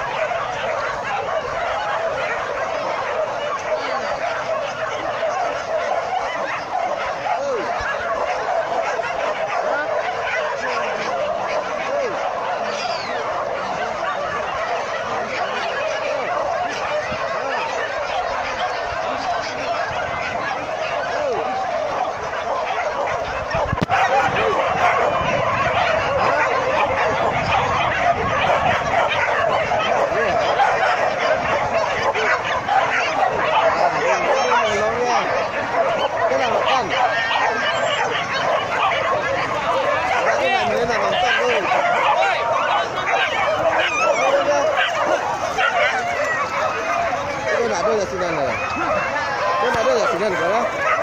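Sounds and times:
dogs yelping and barking: 0.0 - 51.0.

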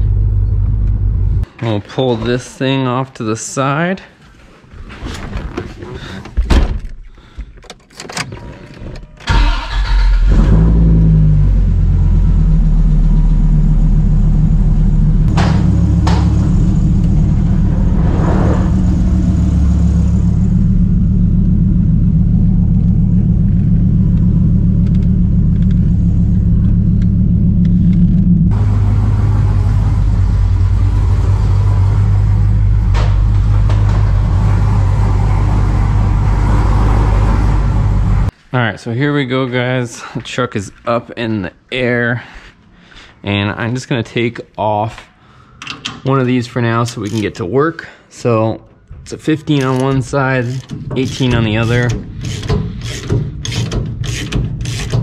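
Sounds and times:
car engine cranking and starting: 7.5 - 38.3, 49.1 - 55.0
pickup engine running: 9.3 - 38.3
car engine running: 10.2 - 38.3.

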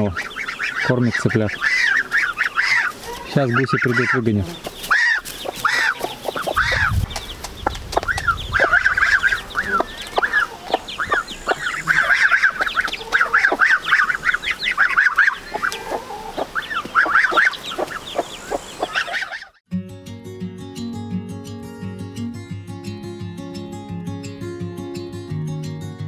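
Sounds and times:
chicks peeping: 0.0 - 19.6
geese calling: 0.0 - 19.6
hen clucking: 0.0 - 19.6.

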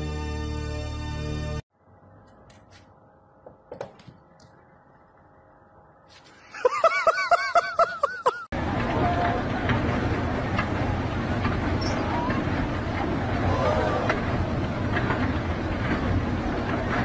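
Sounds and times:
high-pitched laughs: 6.5 - 8.5
steady rush of noise: 8.6 - 17.0.

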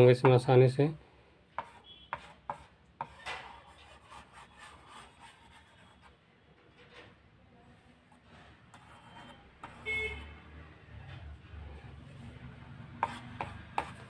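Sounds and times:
stylus scratching on writing pad: 1.6 - 6.2, 8.7 - 10.4, 12.8 - 14.0.

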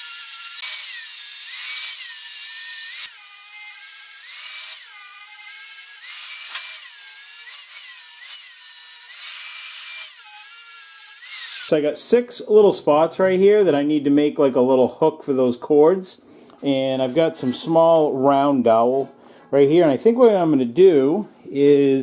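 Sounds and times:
angle grinder grinding metal: 0.0 - 11.7.

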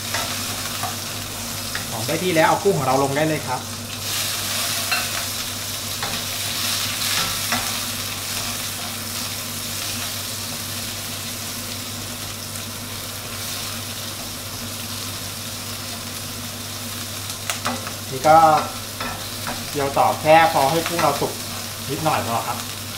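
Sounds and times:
shrimp sizzling in hot oil: 0.0 - 22.9
spatula scraping wok: 4.0 - 9.3.

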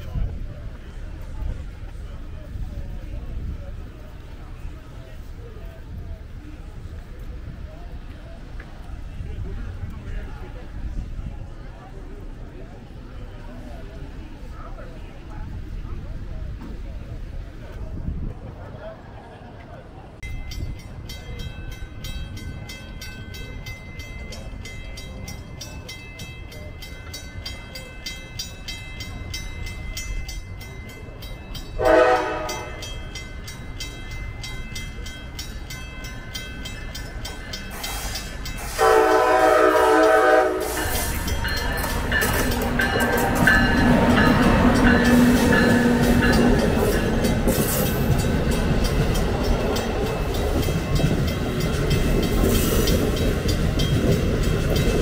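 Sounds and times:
train wheels on rails: 0.0 - 55.0
train horn blasts: 31.8 - 32.9, 38.6 - 41.1.

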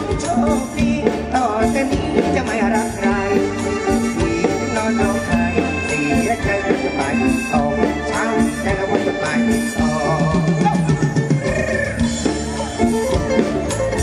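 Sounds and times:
band music over sound system: 0.0 - 14.0.

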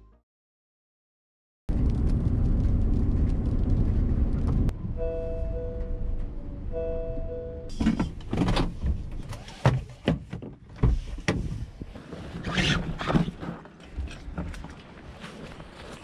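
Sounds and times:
rustling inside a car: 7.7 - 16.0.

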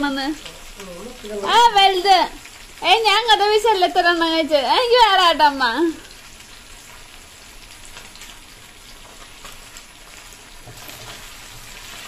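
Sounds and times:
fish frying in hot oil: 0.0 - 12.0.

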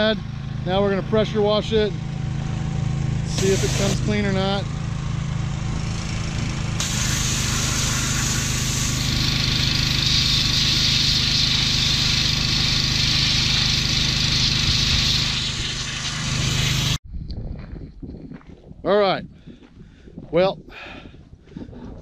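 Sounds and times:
engine running: 0.0 - 17.0
pressure washer spray hissing: 3.3 - 4.5, 6.0 - 17.0.

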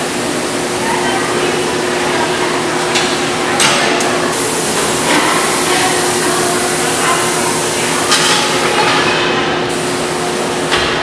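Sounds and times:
machinery humming and whirring: 0.0 - 11.0.

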